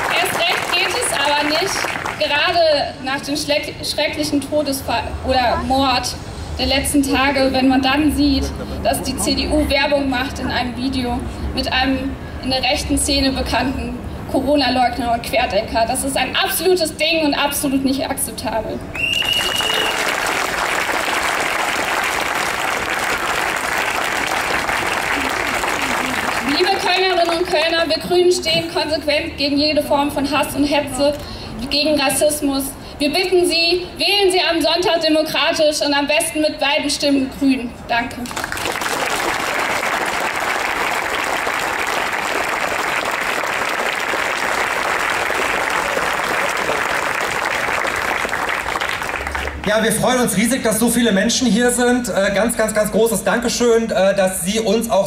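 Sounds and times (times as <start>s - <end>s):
crowd applauding: 0.0s - 2.3s, 19.0s - 27.7s, 38.2s - 49.8s.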